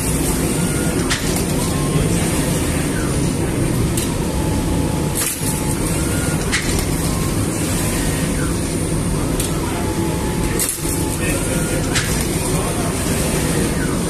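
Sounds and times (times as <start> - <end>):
oven machinery running: 0.0 - 14.0.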